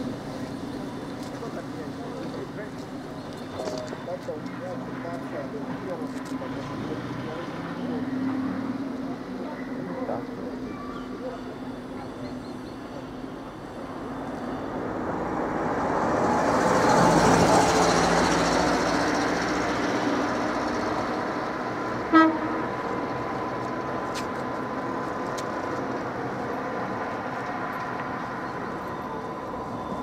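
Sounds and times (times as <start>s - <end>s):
vehicle driving past: 14.1s - 25.2s
short vehicle horn toot: 22.1s - 22.6s.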